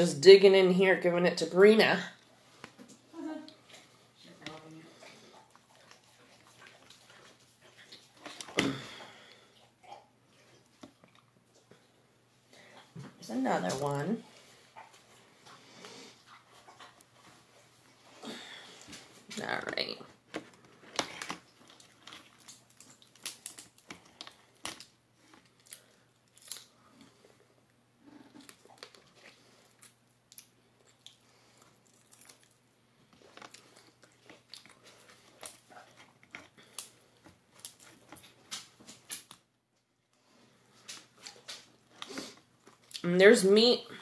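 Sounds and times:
chewing: 2.2 - 13.1, 13.7 - 19.3, 20.4 - 39.4, 40.1 - 43.1
lobster shell cracking: 20.8 - 26.7.

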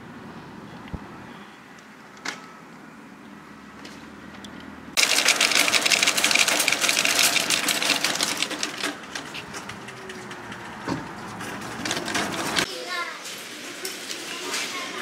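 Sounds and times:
shopping trolley rattling over paving: 5.0 - 15.0.

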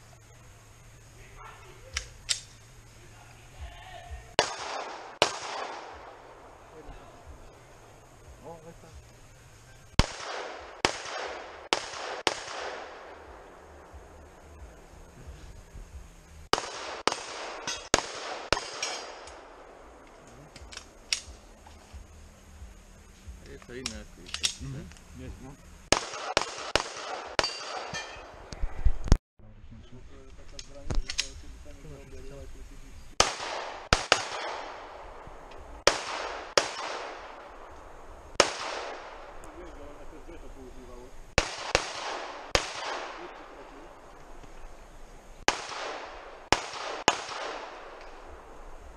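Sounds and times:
pistol shots with echo: 4.3 - 6.6, 10.0 - 13.6, 16.5 - 19.9, 25.9 - 28.4, 33.2 - 37.8, 38.4 - 39.7, 41.3 - 44.3, 45.4 - 48.6
faint gunshot cracks: 45.5 - 48.2.

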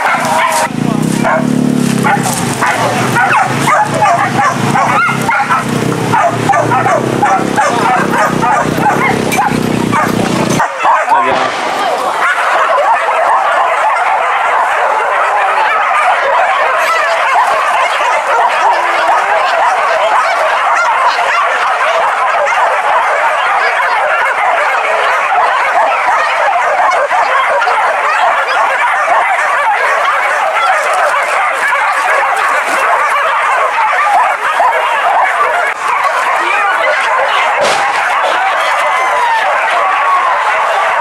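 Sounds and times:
hunting dogs yelping and baying: 0.0 - 41.0.

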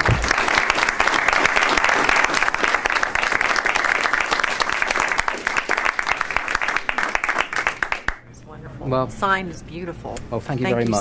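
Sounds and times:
audience applauding: 0.0 - 8.2.

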